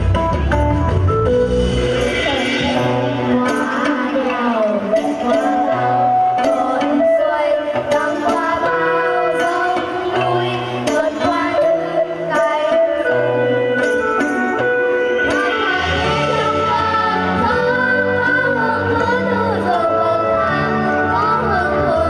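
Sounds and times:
melody over a steady beat: 0.0s - 7.1s.

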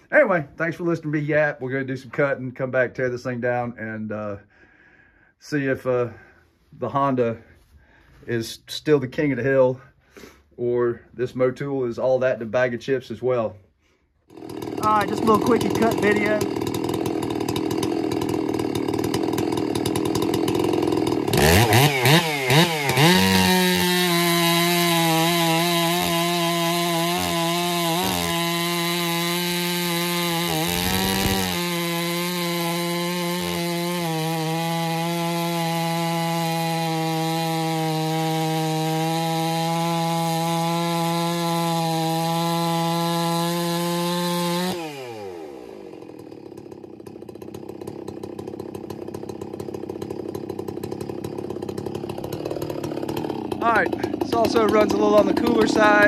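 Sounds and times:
chainsaw revving and cutting: 14.2s - 56.0s.

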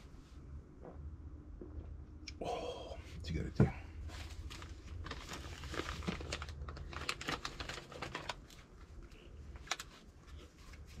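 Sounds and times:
low hum: 0.0s - 7.1s.

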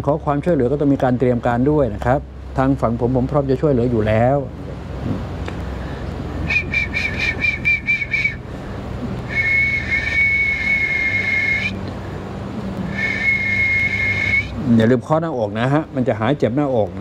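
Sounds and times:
person whistling into a telephone: 6.4s - 8.4s, 9.3s - 11.8s, 12.9s - 14.6s.

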